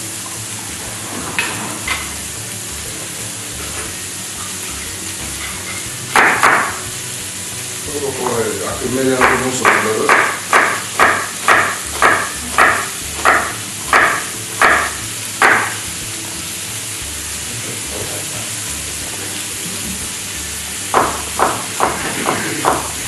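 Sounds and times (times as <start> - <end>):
meat sizzling in a pan: 0.0 - 23.0
knife chopping on wooden board: 6.1 - 6.8, 9.2 - 15.8, 20.9 - 23.0.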